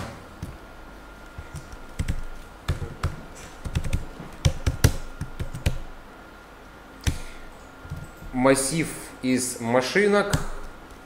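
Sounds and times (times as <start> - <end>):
typing on computer keyboard: 1.5 - 5.8.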